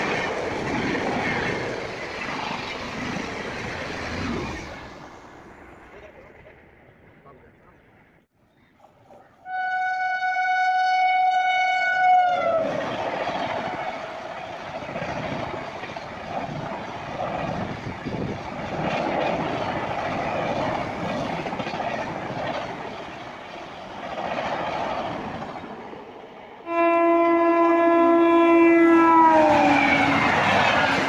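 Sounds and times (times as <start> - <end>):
passenger train passing: 0.0 - 7.8, 8.8 - 31.0
locomotive horn blast: 9.4 - 12.6, 26.6 - 30.4
lower locomotive horn: 9.4 - 12.8, 26.6 - 31.0.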